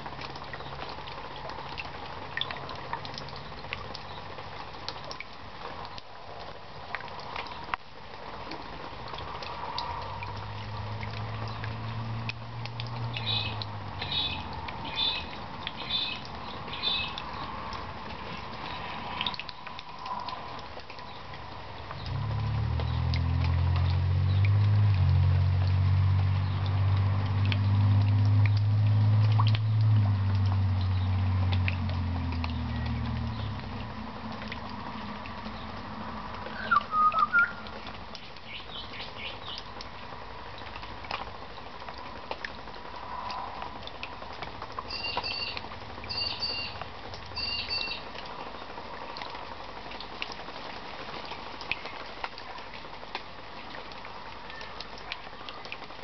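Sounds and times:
rain dripping into puddle: 0.0s - 56.0s
bird chirping: 36.5s - 37.7s, 44.9s - 46.8s, 47.4s - 48.0s.

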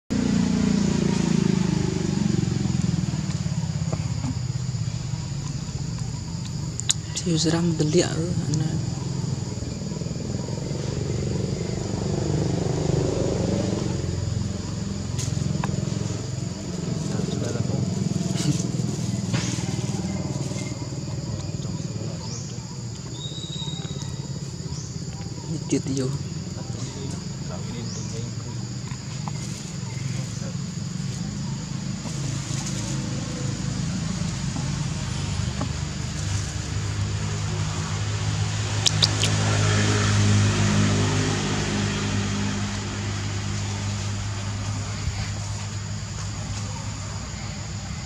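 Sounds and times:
engine droning: 0.0s - 48.0s
small engine running: 7.8s - 23.6s.

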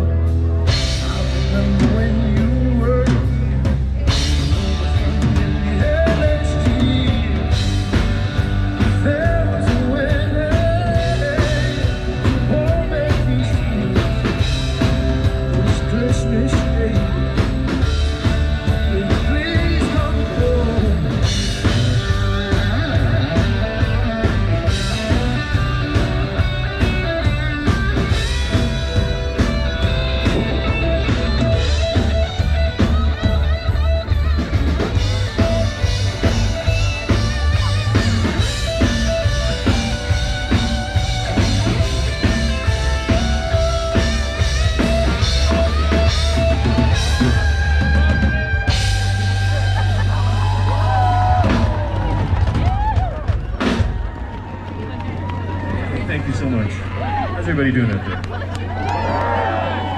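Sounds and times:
drum kit: 0.0s - 55.8s
electric guitar: 0.0s - 55.9s
bass guitar: 0.0s - 59.9s
person singing: 0.9s - 21.8s.

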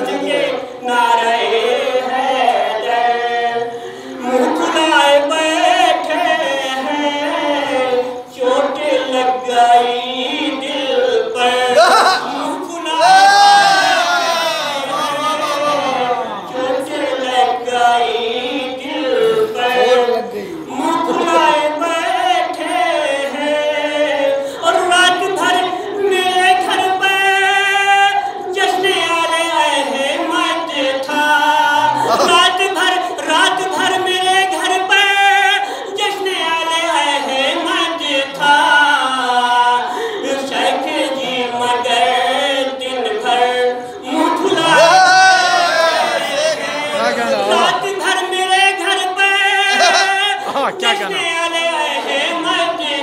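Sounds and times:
man singing unaccompanied: 14.6s - 39.8s, 40.4s - 53.0s
man chanting into a microphone: 46.9s - 52.8s.

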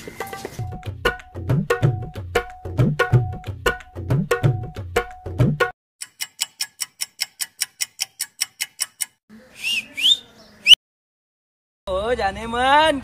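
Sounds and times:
background music with tabla: 0.2s - 5.7s
clock ticking: 6.0s - 9.2s
rising whistle sound effects: 9.6s - 10.8s.

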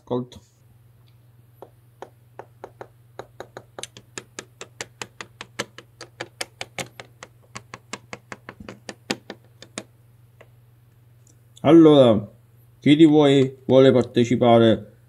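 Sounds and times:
plastic taps on baseplate: 1.6s - 10.5s.

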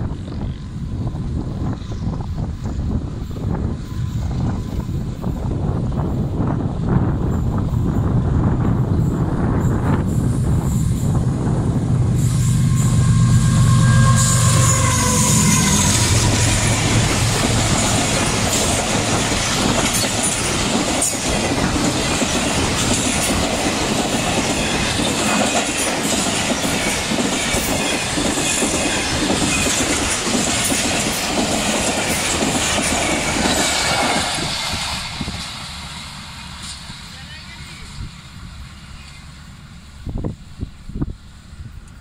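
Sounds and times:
train passing at speed: 0.0s - 42.0s.

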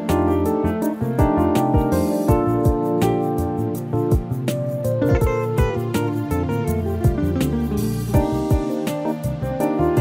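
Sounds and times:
plucked guitar music with beat: 0.0s - 10.0s.

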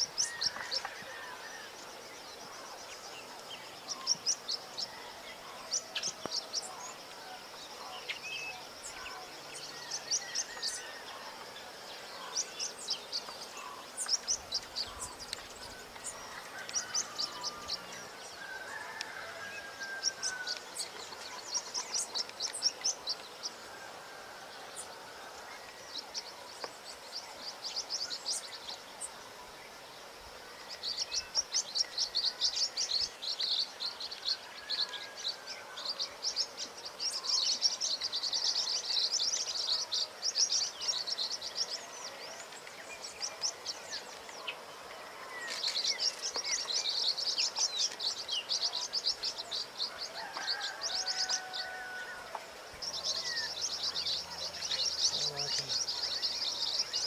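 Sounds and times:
birds chattering chips: 45.3s - 57.0s.

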